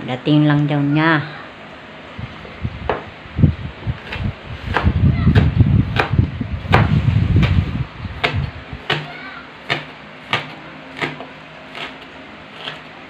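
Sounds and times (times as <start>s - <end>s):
low rumble: 2.1s - 8.8s
knife chopping on cutting board: 4.0s - 7.6s, 8.2s - 12.9s.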